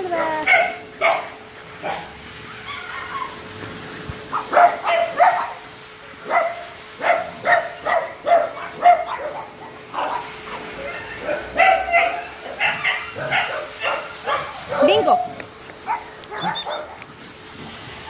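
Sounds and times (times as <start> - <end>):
dog barking: 0.4 - 2.1, 4.3 - 5.6, 6.2 - 15.2, 15.8 - 17.1.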